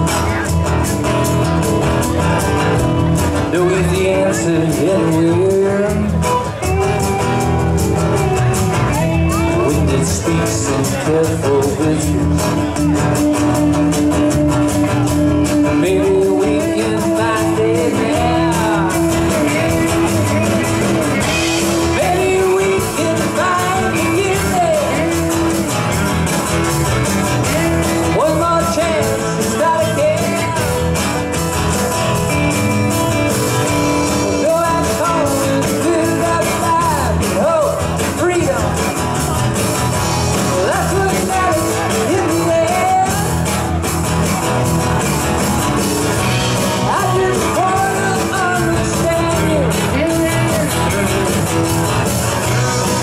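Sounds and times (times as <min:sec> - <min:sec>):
rock band playing live: 0:00.0 - 0:53.0
man singing: 0:03.1 - 0:32.3, 0:33.6 - 0:39.2, 0:40.1 - 0:43.9, 0:46.2 - 0:53.0.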